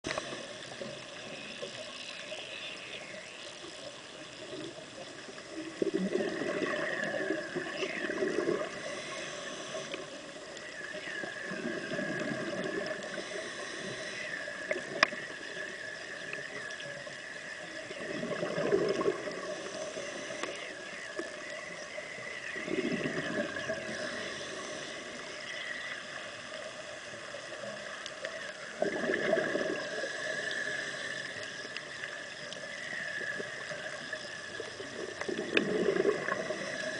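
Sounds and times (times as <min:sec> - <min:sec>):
underwater hiss: 0:00.1 - 0:36.9
regulator exhale bubbling: 0:05.7 - 0:10.2, 0:11.1 - 0:15.2, 0:17.9 - 0:20.8, 0:22.5 - 0:25.7, 0:28.8 - 0:31.6, 0:34.9 - 0:36.9.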